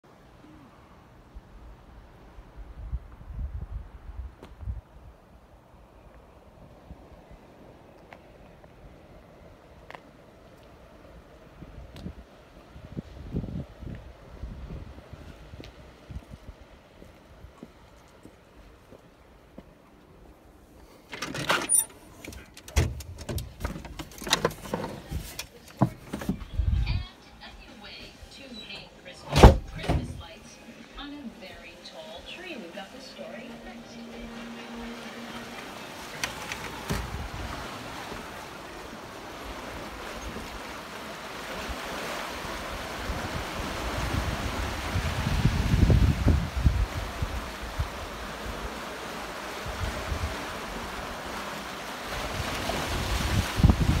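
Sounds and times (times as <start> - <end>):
door squeaking open: 21.2 - 22.0
sea waves washing against rocks: 32.5 - 54.0.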